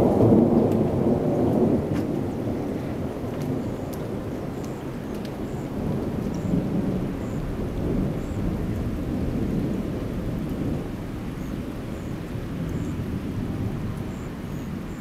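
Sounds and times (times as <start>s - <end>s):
thunder rumbling: 0.0s - 15.0s.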